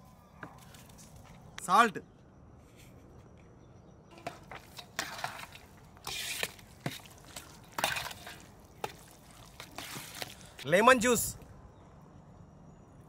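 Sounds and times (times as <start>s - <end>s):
utensils clicking and scraping: 4.1s - 10.7s
ingredients rustling: 4.1s - 11.4s.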